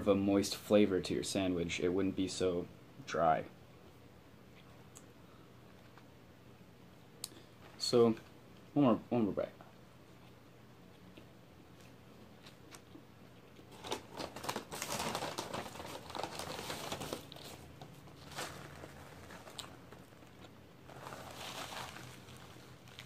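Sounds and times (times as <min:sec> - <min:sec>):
paper bag rustling: 0:13.7 - 0:23.0
paper napkin rustling: 0:13.8 - 0:23.0.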